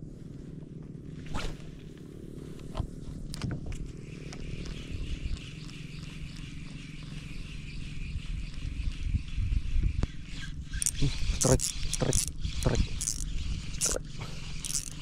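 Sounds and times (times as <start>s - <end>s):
fishing reel whirring and ticking: 10.3s - 15.0s
fishing reel clicks: 10.7s - 15.0s.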